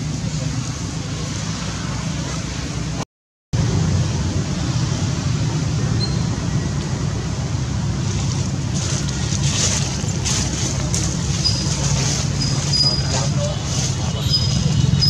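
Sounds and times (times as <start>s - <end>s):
low outdoor rumble: 3.6s - 15.0s
faint high chirps: 5.9s - 6.3s.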